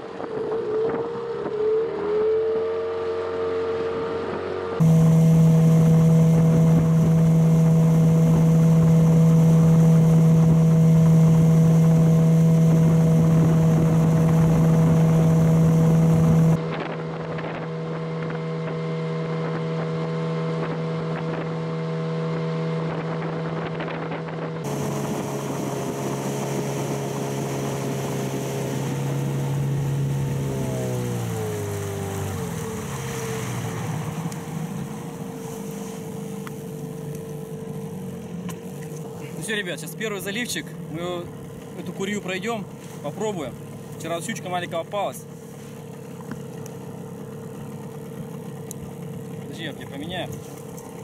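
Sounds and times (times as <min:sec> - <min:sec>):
outboard motor running: 0:00.0 - 0:51.0
wind noise on microphone: 0:22.6 - 0:26.7.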